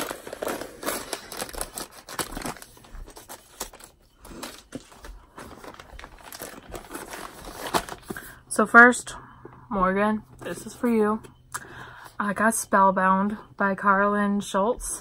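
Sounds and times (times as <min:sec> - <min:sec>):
plastic mailer bag crinkling: 0:00.0 - 0:08.4.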